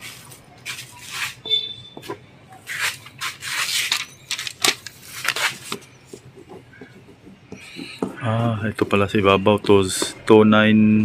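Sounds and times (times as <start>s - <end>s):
cardboard boxes rustling: 2.9s - 8.1s.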